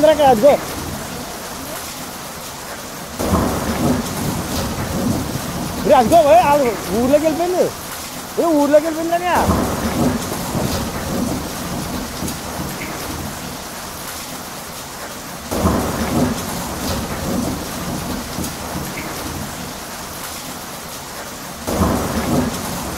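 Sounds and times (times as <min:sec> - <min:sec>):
heavy rain: 0:00.0 - 0:22.9
rumbling thunder: 0:03.1 - 0:07.8, 0:09.3 - 0:13.7, 0:15.4 - 0:19.8, 0:21.6 - 0:22.9.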